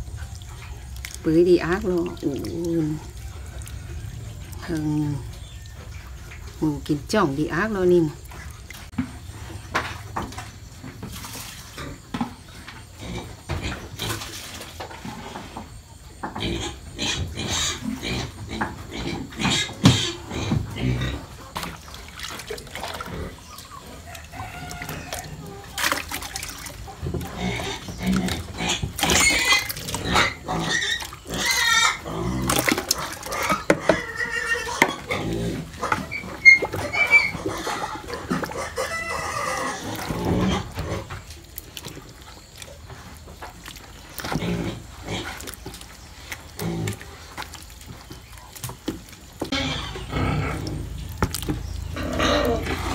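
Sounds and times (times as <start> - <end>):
pigs grunting: 11.6 - 48.6, 49.2 - 52.9
pigs squealing: 16.4 - 42.4, 49.3 - 52.9.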